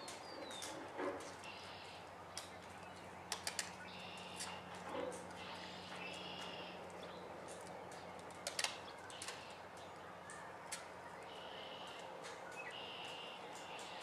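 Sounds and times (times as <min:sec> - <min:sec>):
birds chirping: 0:00.0 - 0:14.0
sharp clicks: 0:03.3 - 0:04.6, 0:05.9 - 0:10.9.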